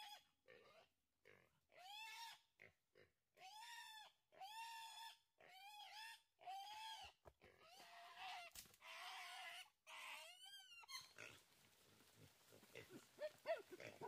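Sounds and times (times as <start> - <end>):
young boar squealing: 1.7 - 2.4, 3.4 - 11.2.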